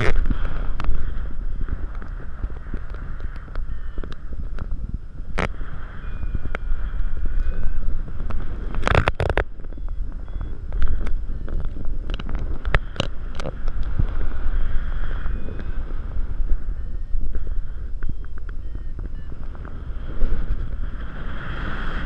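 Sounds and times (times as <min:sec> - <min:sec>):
wind buffeting microphone: 0:00.0 - 0:22.0
sharp clicks and knocks: 0:08.2 - 0:10.0.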